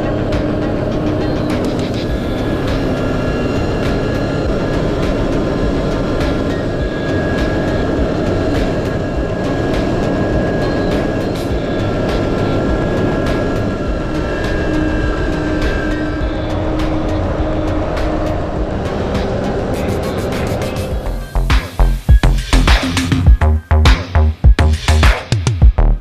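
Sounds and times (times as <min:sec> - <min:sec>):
truck road noise rumble: 0:00.0 - 0:25.0.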